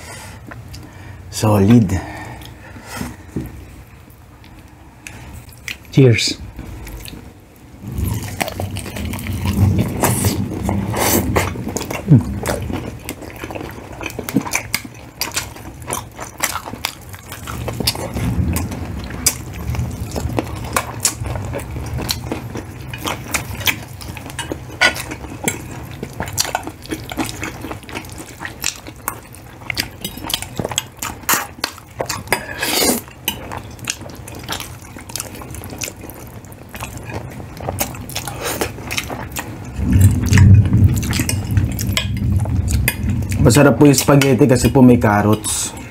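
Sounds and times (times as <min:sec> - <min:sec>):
chewing and biting food: 0:07.8 - 0:43.4.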